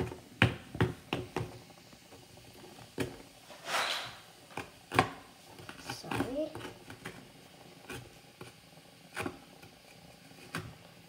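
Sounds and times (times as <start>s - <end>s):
hard lump knocking in a bowl: 0.1s - 1.6s
scraping rustle: 3.5s - 4.2s.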